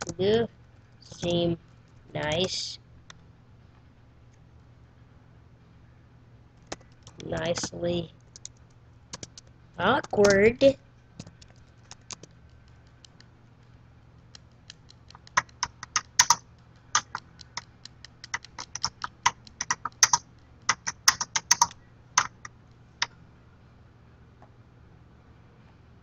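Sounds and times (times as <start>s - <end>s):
typing on computer keyboard: 6.6s - 10.4s, 11.2s - 13.3s, 14.2s - 23.1s.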